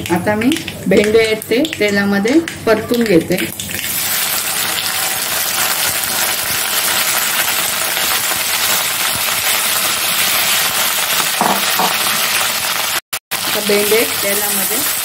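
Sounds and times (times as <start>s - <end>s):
okra sizzling in hot oil: 3.4s - 15.0s.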